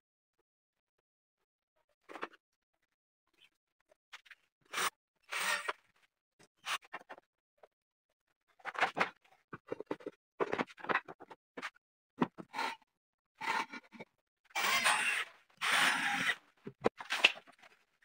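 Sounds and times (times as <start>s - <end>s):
cordless drill driving screw: 14.6s - 16.4s.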